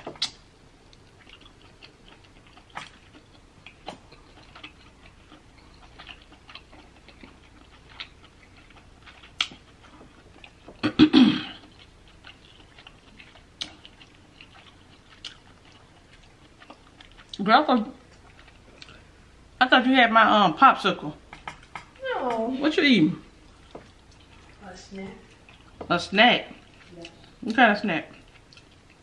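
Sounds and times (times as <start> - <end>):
lip smacks: 0.0 - 7.1
wet chewing clicks: 0.0 - 11.0, 11.6 - 19.1, 23.4 - 24.6, 25.2 - 25.9, 26.5 - 29.0.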